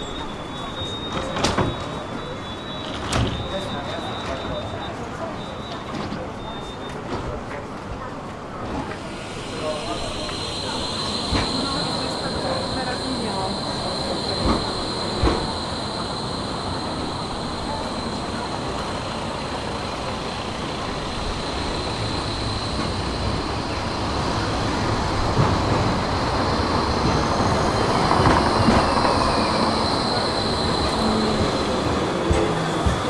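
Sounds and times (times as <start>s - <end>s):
tram rolling rumble: 0.0s - 33.0s
high whine: 8.9s - 33.0s.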